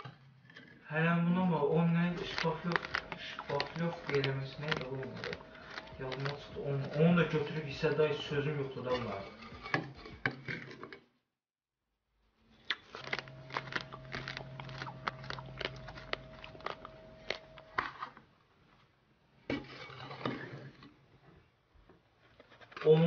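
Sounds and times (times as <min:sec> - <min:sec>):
steady low hum: 0:01.0 - 0:10.3, 0:12.3 - 0:18.4
metal trowel scraping a plate: 0:01.4 - 0:11.0.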